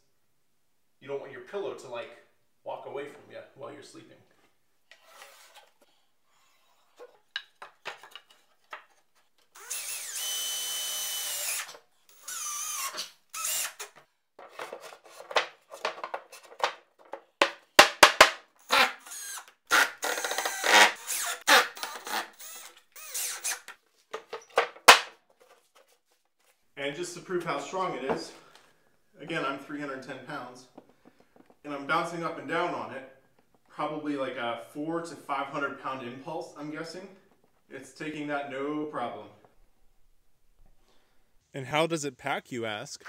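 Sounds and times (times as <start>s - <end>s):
plywood boards knocking and clattering: 7.3s - 8.9s, 14.4s - 18.4s, 24.1s - 25.1s
cordless drill whine: 9.5s - 13.9s, 18.6s - 23.6s.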